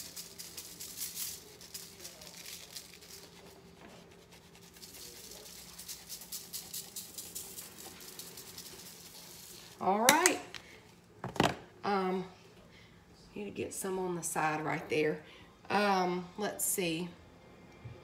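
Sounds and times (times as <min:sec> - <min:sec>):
spice shaker jar rattling: 0:00.0 - 0:03.5, 0:04.3 - 0:10.3.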